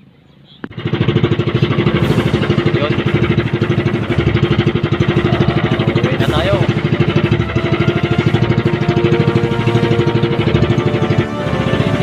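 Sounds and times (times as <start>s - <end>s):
boat engine running: 0.6s - 12.0s.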